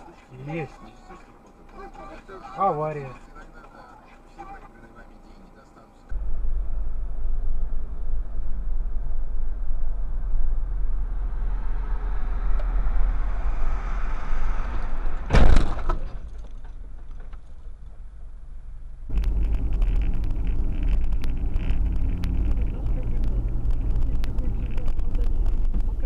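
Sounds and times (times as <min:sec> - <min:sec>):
car interior road noise: 0:00.0 - 0:26.0
road and tyre noise: 0:00.0 - 0:26.0
vehicle crash: 0:06.2 - 0:18.2, 0:19.1 - 0:26.0.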